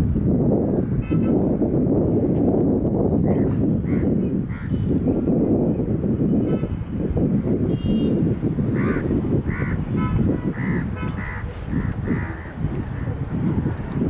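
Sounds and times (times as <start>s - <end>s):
wind rumble on microphone: 0.0s - 14.0s
crow cawing: 8.8s - 9.8s, 10.6s - 12.4s.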